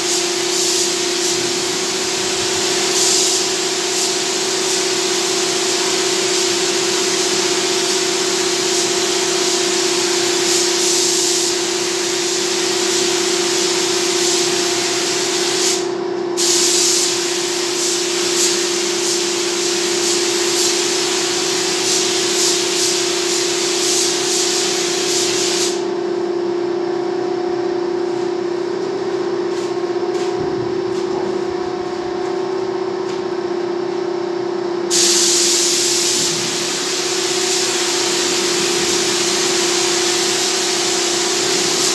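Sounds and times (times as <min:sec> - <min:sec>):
paint spray gun hissing: 0:00.0 - 0:25.9, 0:34.9 - 0:41.9
steady mechanical hum: 0:00.0 - 0:41.9.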